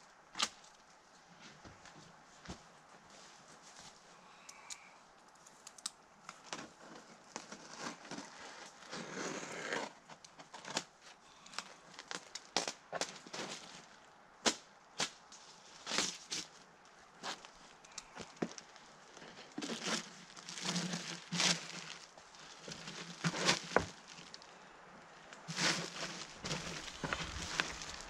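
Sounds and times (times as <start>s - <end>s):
plastic rustle: 17.2s - 24.6s, 25.4s - 28.0s
plastic film crinkling: 17.4s - 24.5s, 25.4s - 28.0s.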